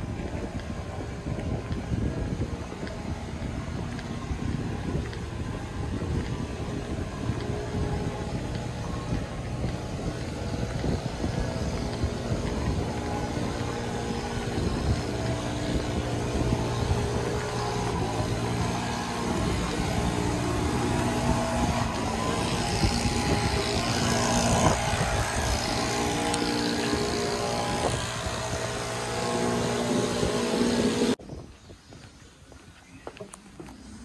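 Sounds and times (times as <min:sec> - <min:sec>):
small engine humming: 0:00.0 - 0:31.2.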